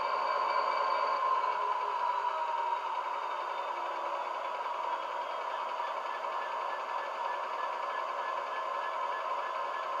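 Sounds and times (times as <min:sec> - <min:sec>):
diesel idling through small speaker: 0:00.0 - 0:10.0.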